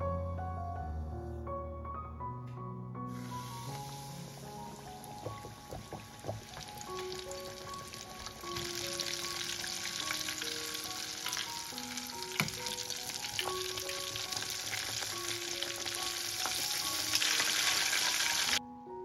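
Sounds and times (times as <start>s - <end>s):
soft piano music: 0.0s - 19.0s
chicken deep-frying in oil: 3.2s - 18.6s.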